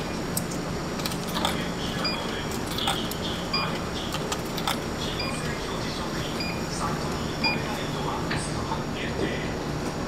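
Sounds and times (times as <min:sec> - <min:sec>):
steady low hum: 0:00.0 - 0:10.0
vending machine mechanical clicks: 0:00.3 - 0:05.7.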